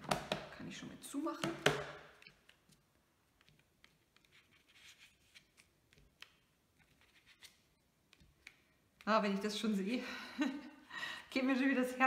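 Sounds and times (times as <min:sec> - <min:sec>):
fingers handling paper and plastic: 0:02.2 - 0:09.1.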